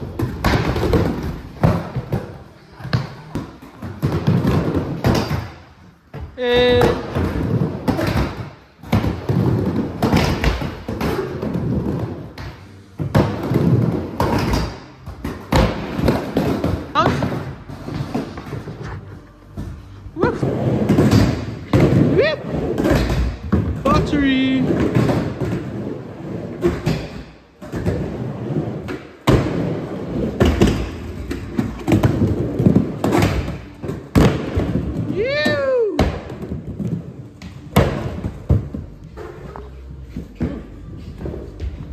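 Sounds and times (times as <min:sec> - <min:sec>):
person whooping: 0:35.1 - 0:36.0.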